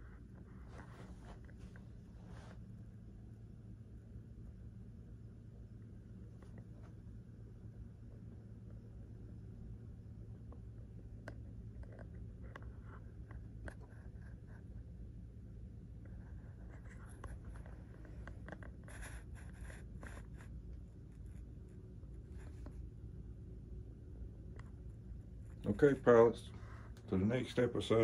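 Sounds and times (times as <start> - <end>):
low room hum: 0.0 - 28.0
rustles of handling: 0.4 - 2.8.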